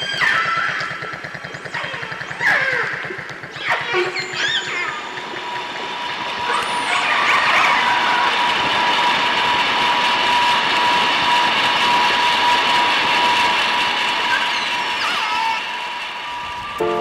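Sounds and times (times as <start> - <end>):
killer whale calls: 0.0 - 5.2
underwater boat engine and propeller: 0.0 - 16.8.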